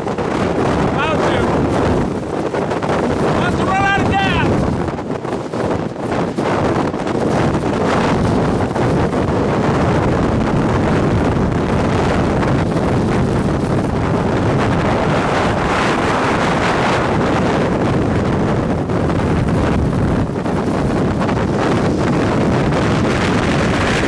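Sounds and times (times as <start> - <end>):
strong wind on microphone: 0.0 - 24.0.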